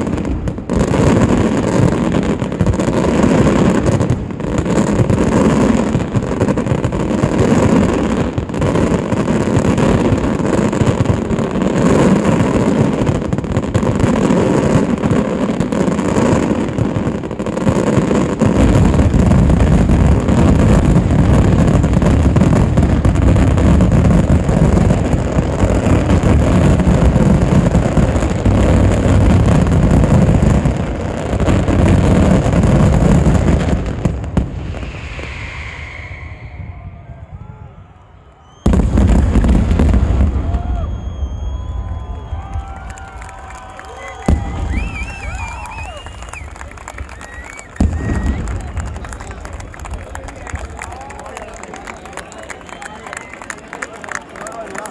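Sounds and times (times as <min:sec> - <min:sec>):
fireworks barrage: 0:00.0 - 0:52.9.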